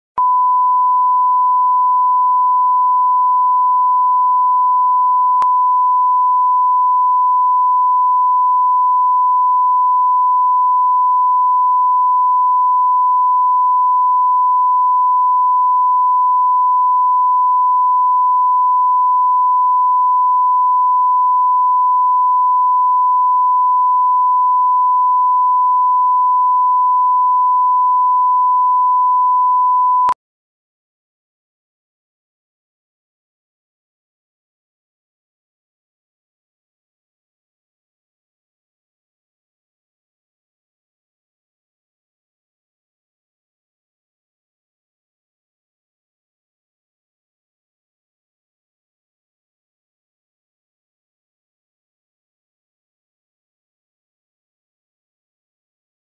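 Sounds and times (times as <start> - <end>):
steady test tone beep: 0.2 - 30.2.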